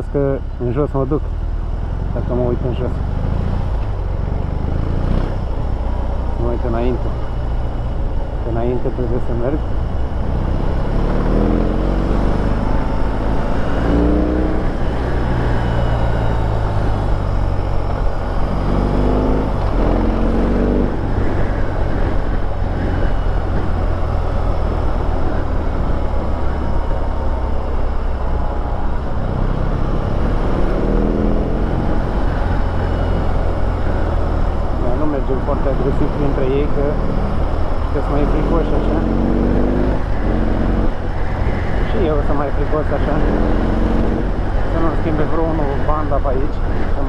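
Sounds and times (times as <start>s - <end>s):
motorcycle engine rumbling and revving: 0.0s - 47.0s.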